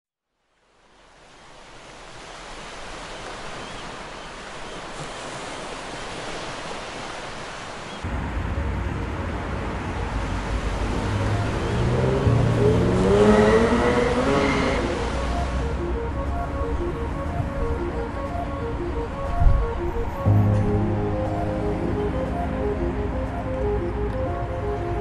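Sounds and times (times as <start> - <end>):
rising tones: 10.7 - 25.0.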